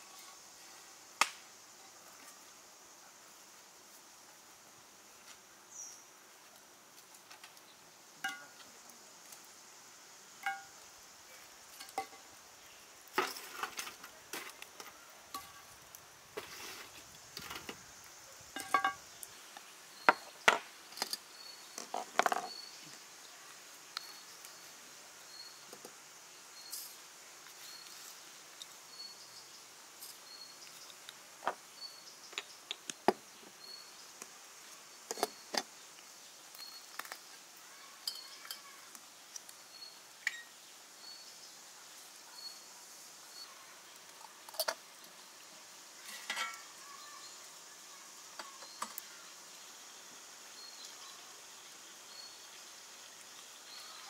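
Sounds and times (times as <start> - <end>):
kitchenware clinking: 18.6 - 19.0, 46.1 - 46.6
faint high chirp: 24.0 - 24.7, 36.5 - 37.0, 37.7 - 38.8, 39.7 - 41.5, 42.2 - 43.8.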